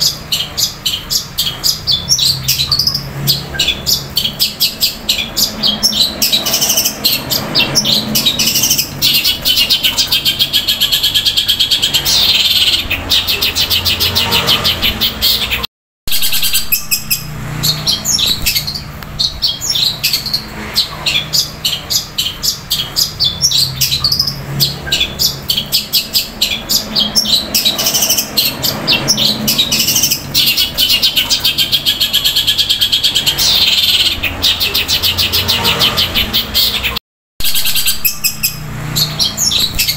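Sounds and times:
bird singing rapid chattering notes: 0:00.0 - 0:39.9.

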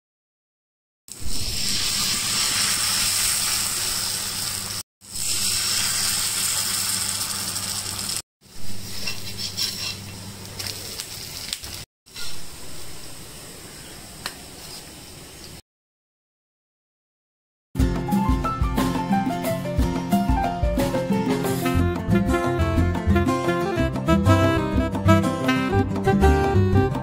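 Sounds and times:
batter sizzling on hot pan: 0:01.2 - 0:15.6.

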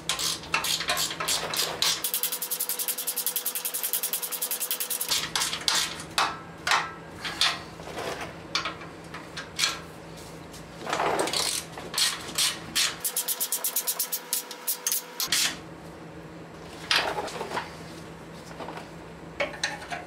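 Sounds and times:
ratchet clicking: 0:00.1 - 0:05.3, 0:13.0 - 0:15.3.

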